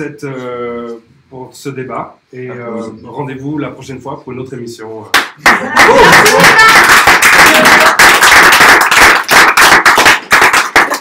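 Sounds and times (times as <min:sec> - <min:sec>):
people applauding: 0:05.2 - 0:11.0.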